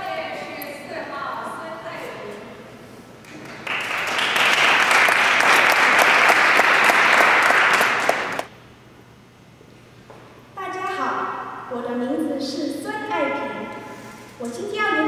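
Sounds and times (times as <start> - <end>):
audience applause: 3.2 - 8.5.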